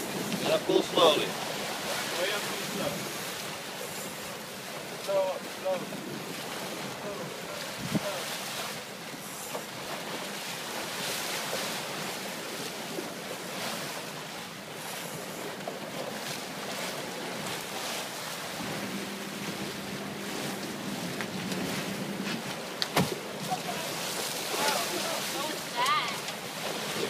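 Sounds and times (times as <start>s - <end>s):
sea water churning in boat wake: 0.0s - 27.0s
wind on microphone: 7.7s - 8.2s
steady low hum: 18.4s - 23.5s.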